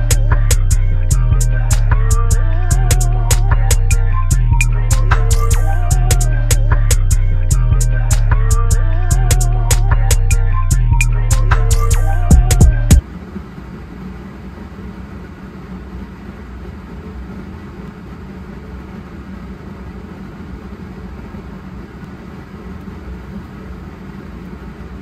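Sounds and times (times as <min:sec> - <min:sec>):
background music: 0:00.0 - 0:13.0
low machinery drone: 0:00.0 - 0:25.0.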